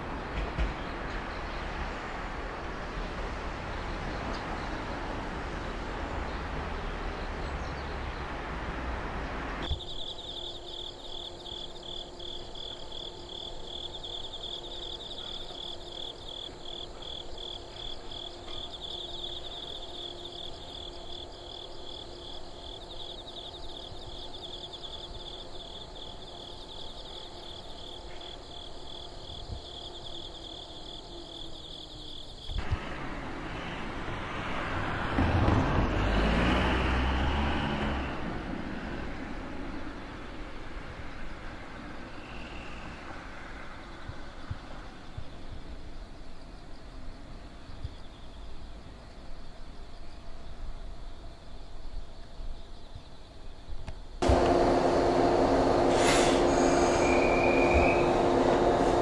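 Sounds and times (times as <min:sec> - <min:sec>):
train running by: 0:00.0 - 0:31.7, 0:32.6 - 0:47.7, 0:54.2 - 0:59.0
insects trilling: 0:09.6 - 0:32.8, 0:38.9 - 0:54.3, 0:55.9 - 0:59.0
faint steady hum: 0:43.6 - 0:56.8.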